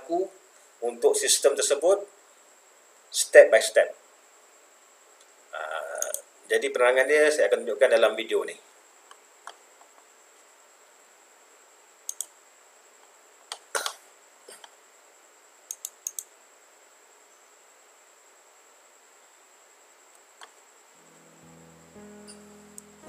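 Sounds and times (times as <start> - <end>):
faint high-pitched hiss: 0.0 - 23.0
computer mouse clicks: 12.1 - 12.3, 15.7 - 16.3.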